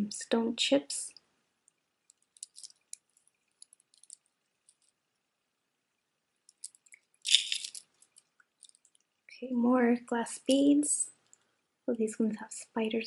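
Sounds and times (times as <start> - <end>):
beads clicking together: 2.1 - 5.0, 6.5 - 9.0.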